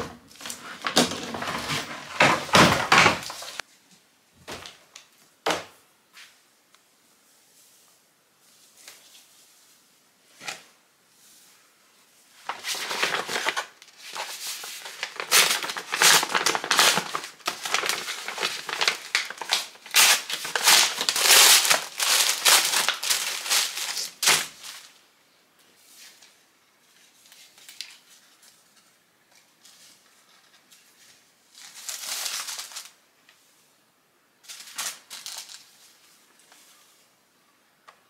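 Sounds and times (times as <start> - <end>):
paper packaging crinkling: 0.0 - 3.6, 12.4 - 25.0, 27.0 - 33.0, 34.4 - 36.1.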